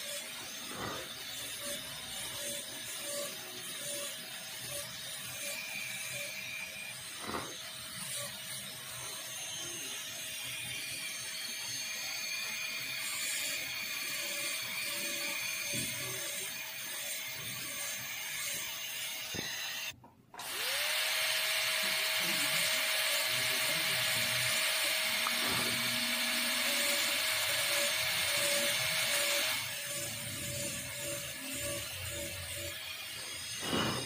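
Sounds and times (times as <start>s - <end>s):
dental drill whining: 0.0s - 34.0s.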